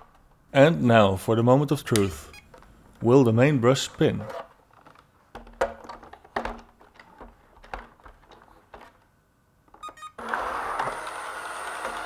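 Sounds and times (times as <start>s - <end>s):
knocks and clicks of handling: 4.3s - 9.1s
electronic beeps: 9.8s - 10.2s
robot vacuum motors whirring: 10.2s - 12.0s.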